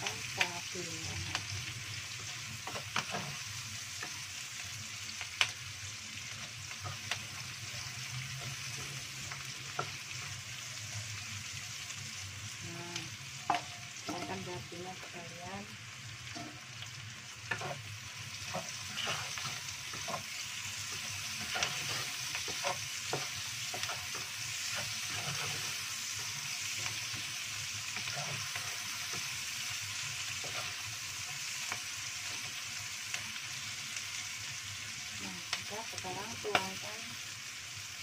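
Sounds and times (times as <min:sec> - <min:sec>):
food sizzling in hot oil: 0:00.0 - 0:38.0
wooden spatula scraping a pan: 0:02.3 - 0:04.2, 0:17.5 - 0:27.3.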